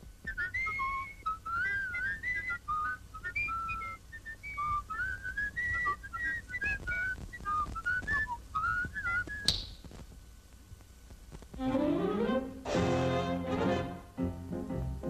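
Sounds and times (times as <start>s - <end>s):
cartoon whistle tune: 0.3s - 9.6s.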